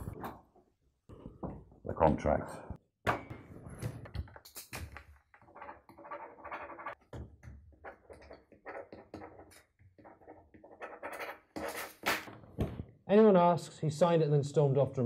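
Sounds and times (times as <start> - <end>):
pen scratching on paper: 7.8 - 12.0.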